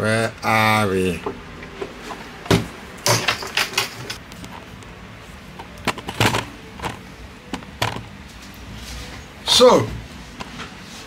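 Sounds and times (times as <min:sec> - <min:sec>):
objects knocking on workbench: 0:02.5 - 0:04.2.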